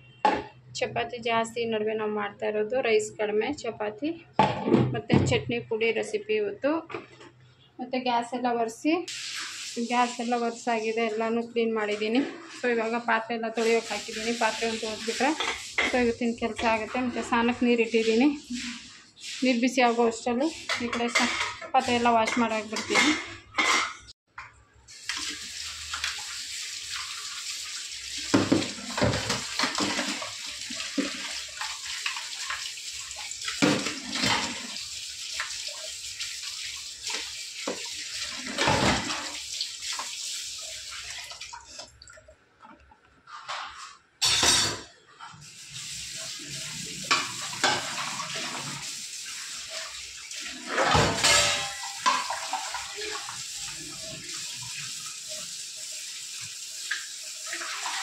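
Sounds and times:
metal dishes clattering: 20.7 - 24.1, 28.4 - 30.4, 43.4 - 45.0, 47.1 - 48.6, 50.6 - 53.2
tap running into a sink: 28.2 - 31.4.

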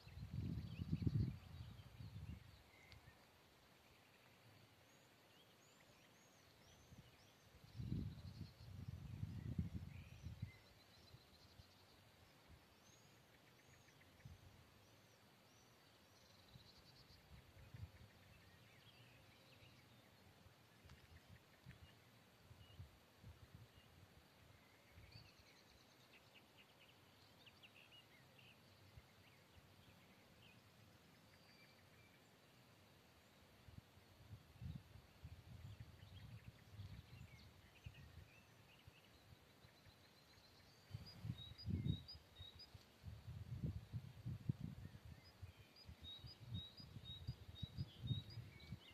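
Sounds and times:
wind buffeting microphone: 0.0 - 2.5, 7.7 - 10.6, 40.9 - 42.2, 43.0 - 48.9
songbird chirps and trill: 0.0 - 48.9.

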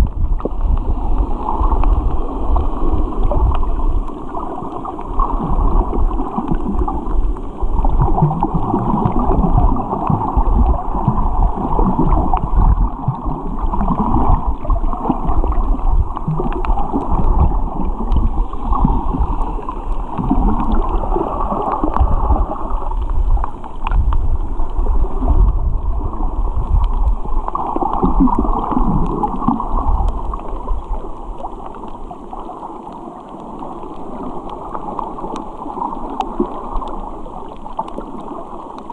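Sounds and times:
low rumble: 0.0 - 31.6
underwater gurgling churn: 0.0 - 38.9
faint clicks: 21.6 - 22.1, 22.8 - 24.8, 26.8 - 38.9.

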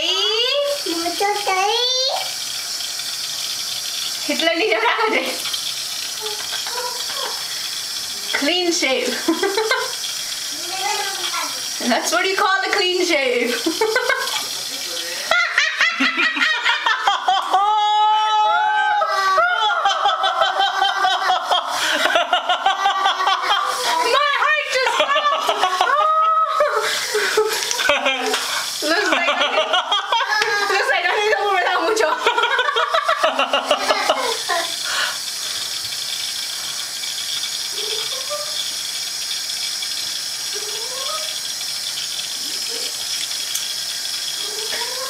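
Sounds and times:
tap running: 0.0 - 17.7, 19.7 - 45.0
high-pitched voice laughing: 6.2 - 7.5, 15.3 - 31.5, 32.4 - 34.8.

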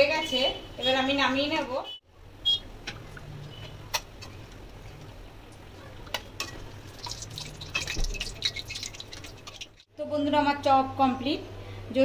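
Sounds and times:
food deep-frying in hot oil: 2.8 - 9.9.

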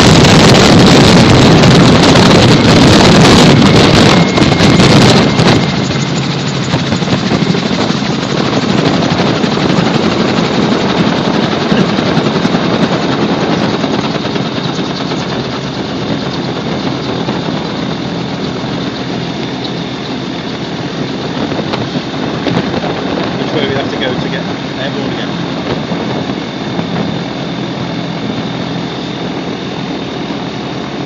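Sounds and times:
engine and propeller drone: 0.0 - 31.0
rushing wind noise: 0.0 - 31.0.

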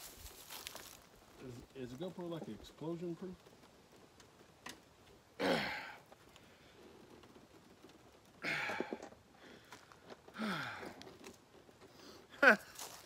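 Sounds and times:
person making breathy sounds: 10.3 - 11.0.

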